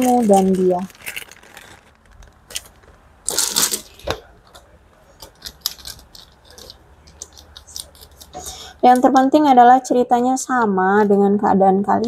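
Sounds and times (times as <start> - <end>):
wooden discs clicking together: 5.2 - 8.4.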